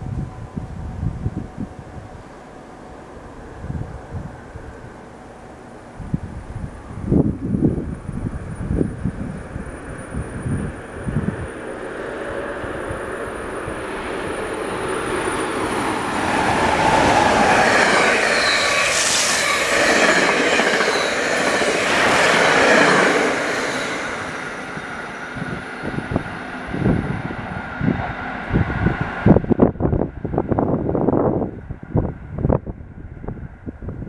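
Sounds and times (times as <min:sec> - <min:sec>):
wind buffeting microphone: 0:00.0 - 0:02.2, 0:05.9 - 0:34.0
train wheels rushing on rail: 0:00.0 - 0:34.0
high wheel squeal: 0:00.1 - 0:27.1.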